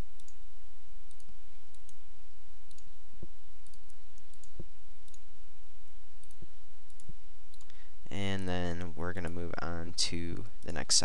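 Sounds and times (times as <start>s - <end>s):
low electrical hum: 0.0s - 11.0s
computer mouse clicking: 2.7s - 2.9s, 3.6s - 5.2s.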